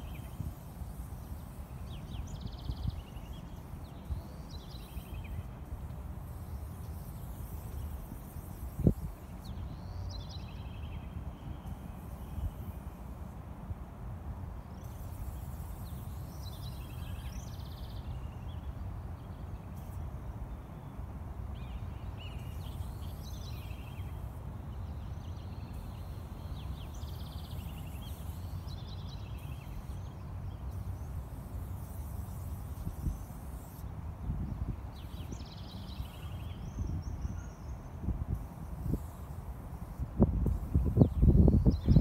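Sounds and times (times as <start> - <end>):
birds chirping: 40.7 - 42.0.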